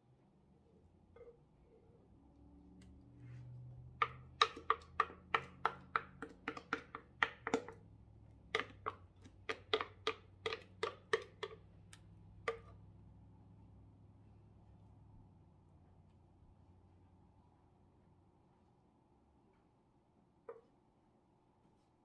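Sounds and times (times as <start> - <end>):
spoon tapping mixing bowl: 3.8 - 12.9.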